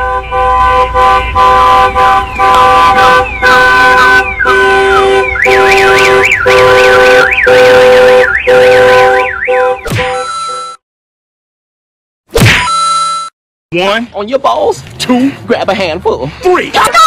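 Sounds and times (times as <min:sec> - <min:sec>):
car alarm siren: 0:00.0 - 0:10.8.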